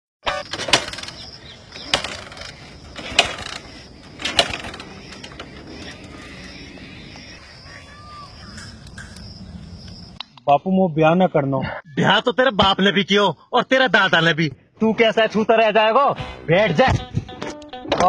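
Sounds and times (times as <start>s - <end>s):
sharp clicks: 0.3s - 6.6s.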